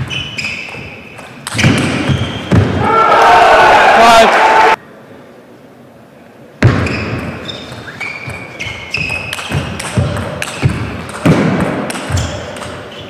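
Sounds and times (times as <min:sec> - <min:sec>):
shoes squeaking on floor: 0:00.0 - 0:02.7, 0:06.8 - 0:10.8, 0:12.1 - 0:13.0.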